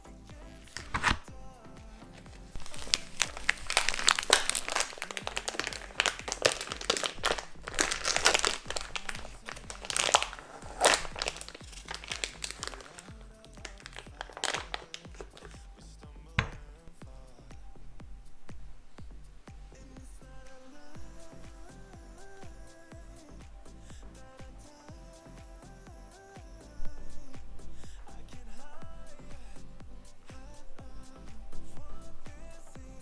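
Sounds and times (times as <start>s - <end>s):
background music: 0.0s - 33.0s
plastic packaging crinkling and tearing: 0.7s - 1.3s, 2.5s - 15.6s.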